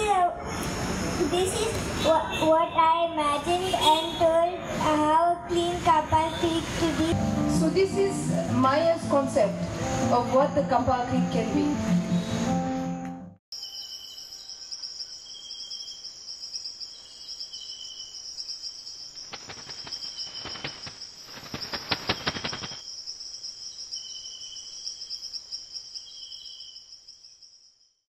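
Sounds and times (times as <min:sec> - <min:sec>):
crickets chirping: 0:13.5 - 0:28.0
sharp rapid clicks: 0:19.2 - 0:22.8.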